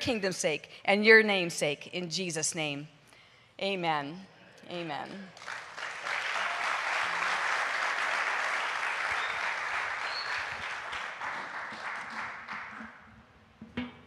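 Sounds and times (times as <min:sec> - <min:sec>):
congregation applauding: 0:05.3 - 0:13.0.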